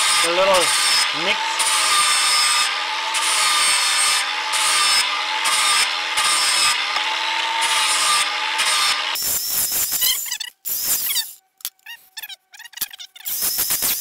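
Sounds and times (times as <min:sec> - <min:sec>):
angle grinder grinding steel: 0:00.0 - 0:11.4.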